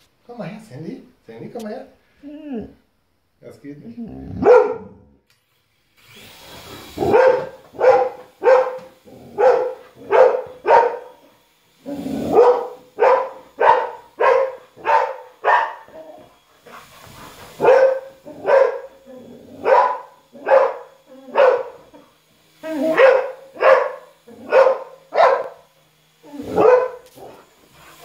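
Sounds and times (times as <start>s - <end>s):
dog barking: 4.4s - 5.0s, 7.0s - 11.2s, 12.2s - 16.2s, 17.6s - 19.0s, 19.6s - 21.9s, 22.7s - 25.7s, 26.4s - 27.4s.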